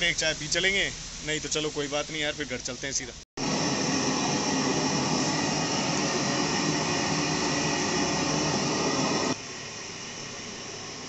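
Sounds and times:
steady hiss: 0.0s - 11.0s
loud rushing noise: 3.4s - 9.4s.

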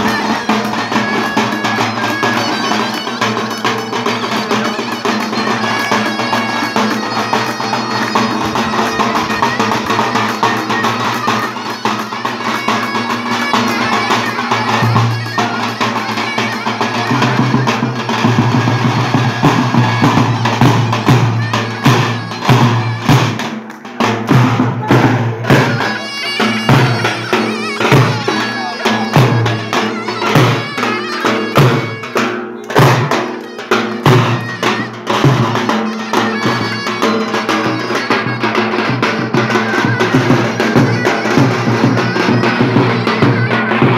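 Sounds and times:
shrill reed pipe melody: 0.0s - 43.9s.

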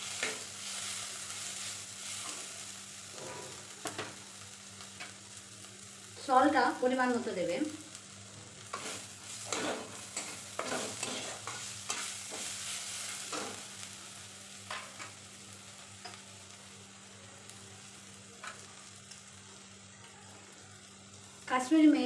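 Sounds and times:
soft sizzle: 0.0s - 22.0s
spatula scraping a pan: 3.1s - 3.6s, 8.7s - 13.7s.

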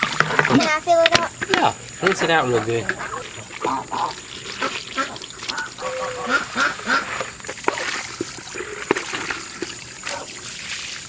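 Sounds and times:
hose water splashing on plastic: 0.0s - 11.0s
ducks quacking: 2.5s - 8.9s.

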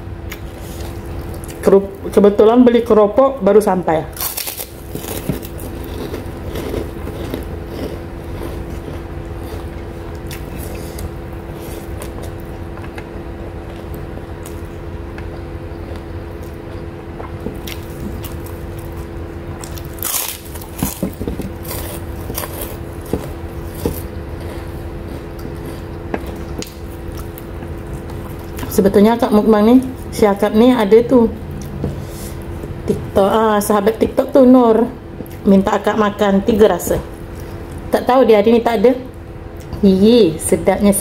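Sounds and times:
steady low hum: 0.0s - 41.0s
crunchy chewing of crackers: 4.1s - 28.7s.

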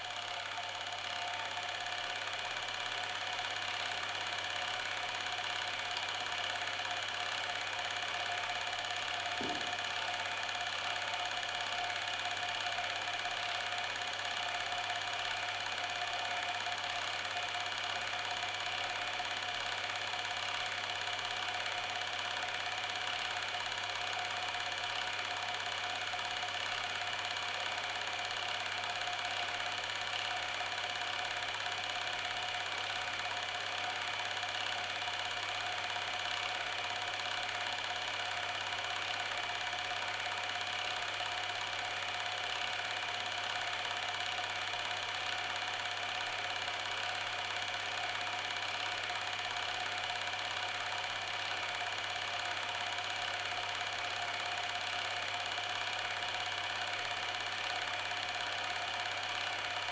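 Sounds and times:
film projector whirring: 0.0s - 59.9s.

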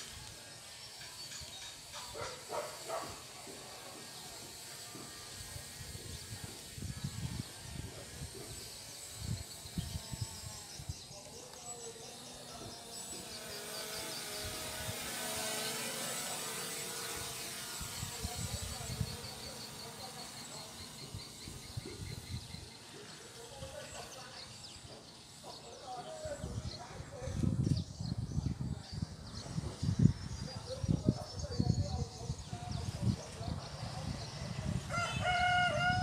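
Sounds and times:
wind buffeting microphone: 4.9s - 11.4s, 12.5s - 15.6s, 16.4s - 22.7s, 26.0s - 36.0s.

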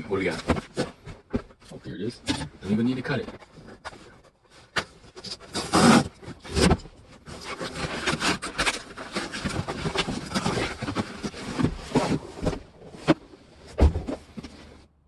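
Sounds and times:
cardboard tearing and scraping: 5.2s - 12.4s.

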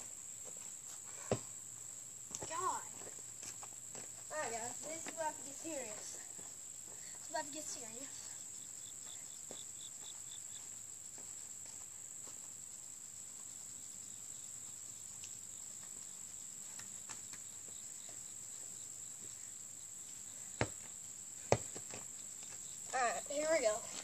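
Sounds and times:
insect chorus: 0.0s - 24.0s
basketball bouncing on dirt: 1.3s - 1.6s, 20.6s - 22.6s.

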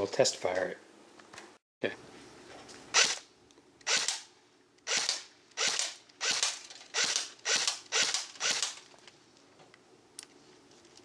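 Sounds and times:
airsoft rifle firing single shots: 4.9s - 8.8s.

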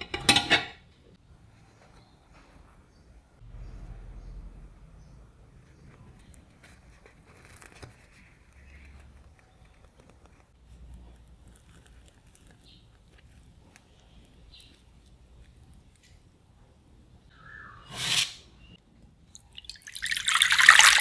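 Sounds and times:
bread tearing softly: 5.9s - 16.6s
bread crust crackling: 6.2s - 16.7s.

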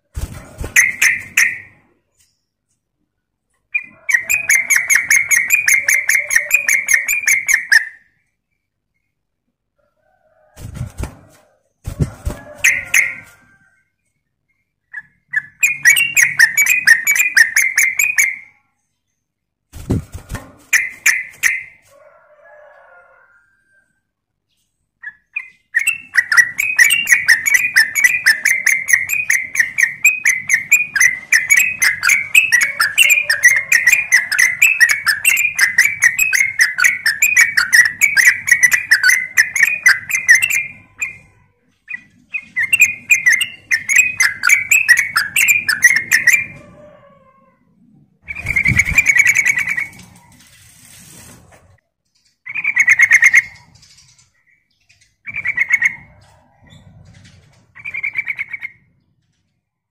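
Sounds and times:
bird singing and chattering: 3.7s - 8.1s, 14.8s - 18.5s, 25.0s - 46.6s, 48.2s - 50.2s, 52.2s - 58.8s.

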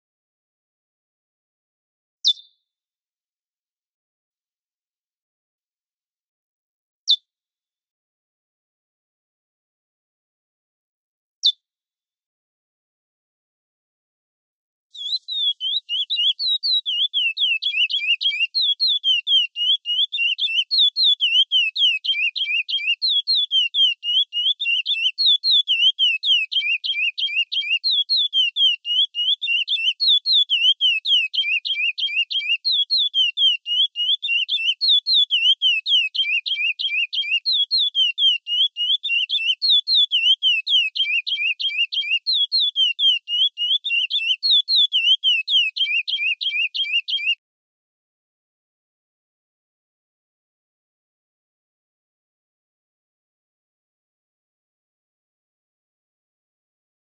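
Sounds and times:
finch singing whistled notes: 2.2s - 2.6s, 15.0s - 47.4s.

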